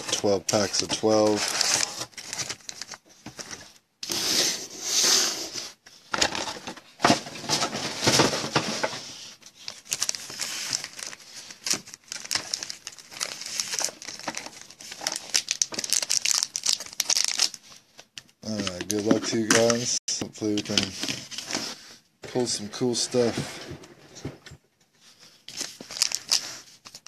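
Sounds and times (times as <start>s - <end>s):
foil packs crinkling: 0.1s - 3.6s, 9.6s - 17.7s, 25.5s - 27.0s.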